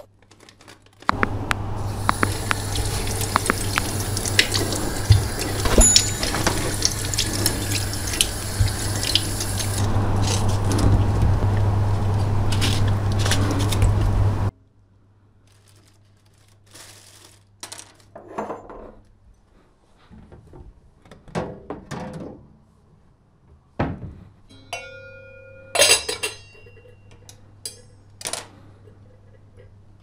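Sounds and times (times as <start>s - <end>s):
tap running into a sink: 2.0s - 9.8s.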